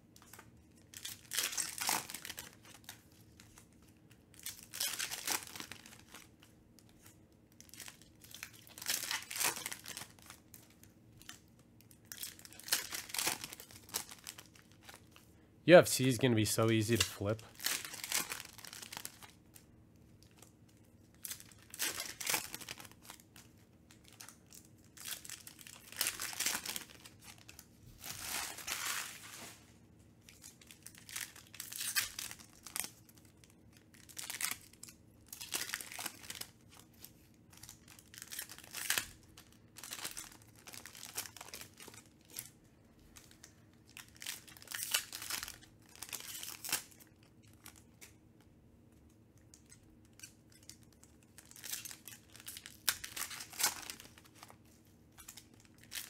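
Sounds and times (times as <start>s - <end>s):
foil wrappers crinkling and tearing: 0.2s - 15.3s, 15.9s - 19.6s, 20.2s - 48.2s, 49.5s - 56.0s.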